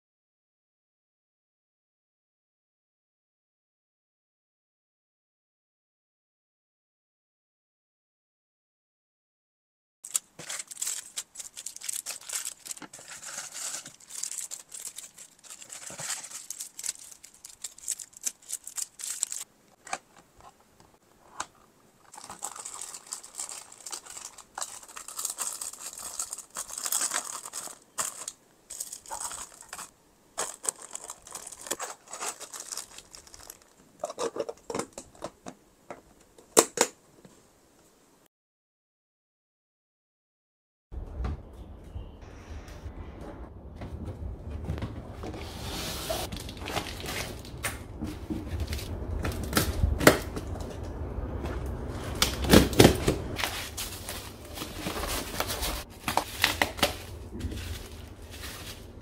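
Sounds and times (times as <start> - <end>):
plastic packaging crinkling: 10.0 - 20.1, 22.0 - 35.2, 46.2 - 47.7, 52.2 - 59.0.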